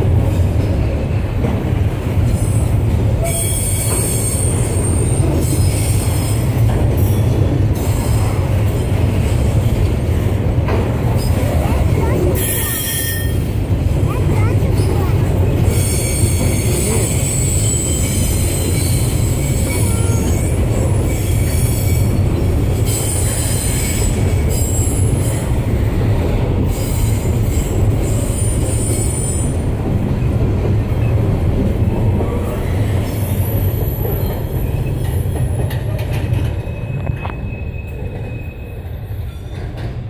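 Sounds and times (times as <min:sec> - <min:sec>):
freight train rumbling past: 0:00.0 - 0:40.0
high-pitched wheel squeal: 0:12.4 - 0:13.4, 0:15.7 - 0:20.4.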